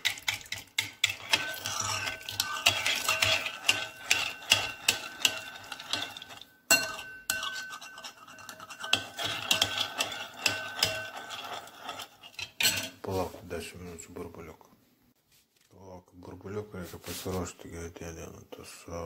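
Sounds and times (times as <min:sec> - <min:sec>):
spoon scraping glass bowl: 0:00.0 - 0:13.0
spoon clinking against glass: 0:00.5 - 0:11.2.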